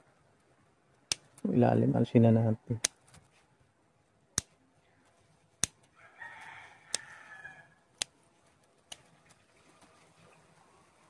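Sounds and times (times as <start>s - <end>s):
rooster crowing: 5.9s - 7.8s
pruning scissors snipping twigs: 6.9s - 7.2s, 8.0s - 9.4s.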